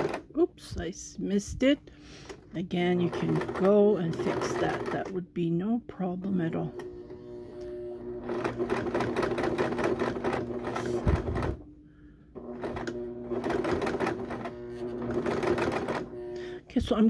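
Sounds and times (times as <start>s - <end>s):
sewing machine stitching: 0.0s - 0.3s, 2.6s - 5.2s, 6.5s - 11.7s, 12.4s - 16.4s
sewing machine stopping thump: 7.6s - 11.6s, 12.4s - 16.2s.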